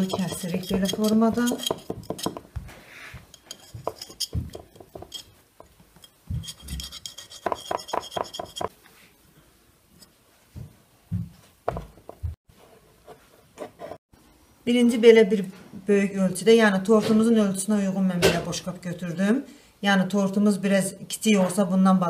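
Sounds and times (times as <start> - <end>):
knife scraping against plate: 0.0 - 2.4, 3.2 - 5.4, 6.0 - 8.7.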